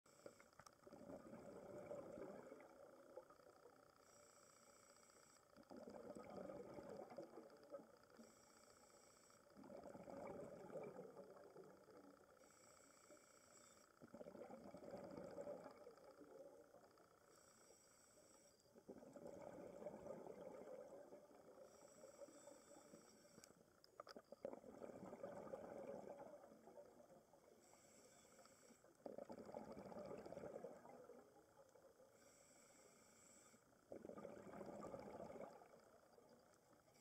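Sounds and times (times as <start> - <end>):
bubbly underwater exhalations: 9.6 - 11.4, 18.9 - 21.5, 24.4 - 27.1, 29.0 - 31.2, 33.9 - 36.0.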